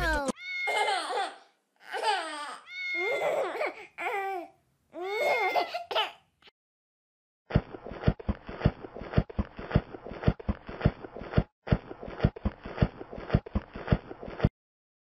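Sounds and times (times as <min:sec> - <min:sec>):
baby crying: 0:00.0 - 0:06.2.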